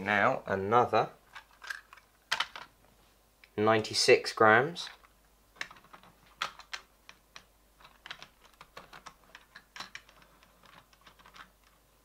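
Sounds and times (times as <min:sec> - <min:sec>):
plastic model train coaches clicking: 0:04.9 - 0:11.8.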